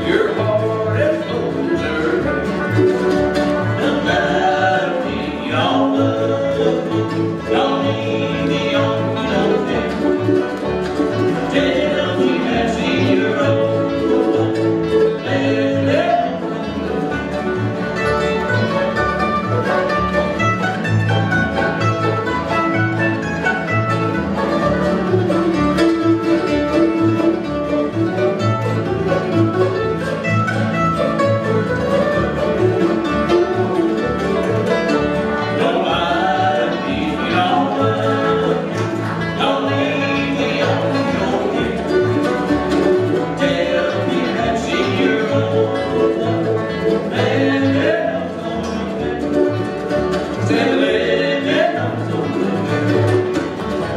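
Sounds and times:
people singing: 0.0 - 2.6, 3.5 - 10.5, 11.1 - 16.8, 35.4 - 52.7
bluegrass band playing: 0.0 - 53.9
upright bass plucking: 0.0 - 53.9.

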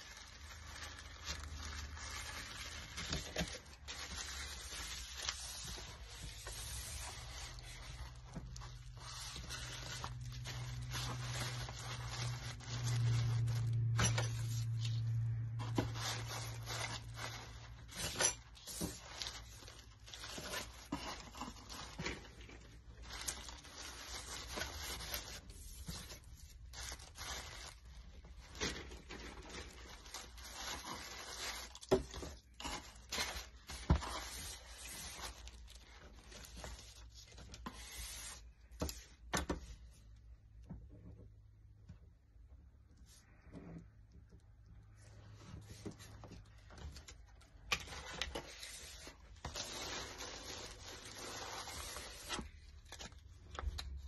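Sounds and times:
tissue paper rustling: 0.0 - 38.7, 47.9 - 53.3
low hum: 7.9 - 17.7.

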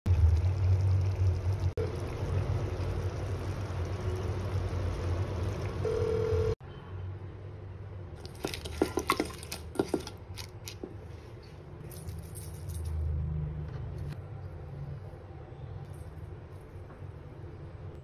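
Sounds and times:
prawns clinking in metal bowl: 8.2 - 10.6.

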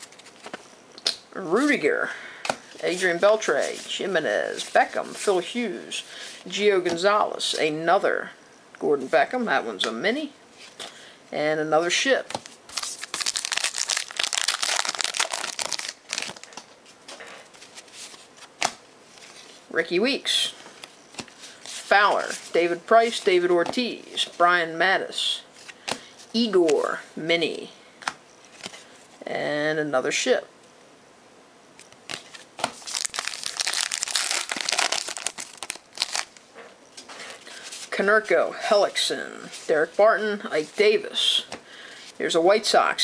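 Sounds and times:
wrapper crinkling as torn open: 12.7 - 16.6, 32.1 - 36.4.

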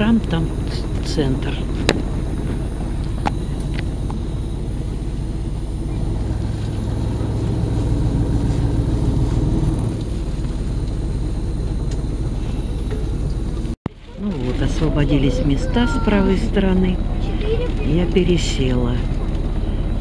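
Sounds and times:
bus engine rumble: 0.0 - 20.0.

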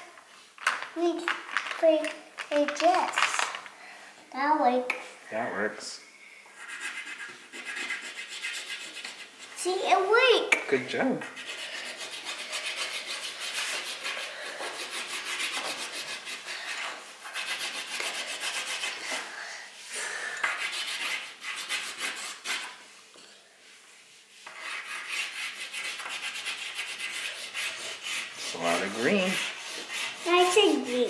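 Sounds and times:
crayon scribbling on paper: 6.6 - 9.8, 11.2 - 19.2, 20.4 - 22.8, 24.3 - 31.0.

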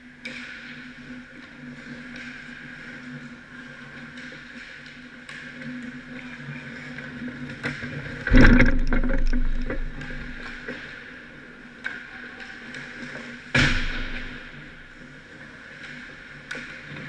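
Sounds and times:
loud knock with rattle: 8.3 - 10.5.

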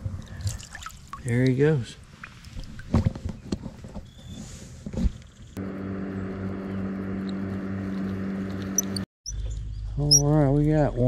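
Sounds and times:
motor running steadily: 5.6 - 9.1.

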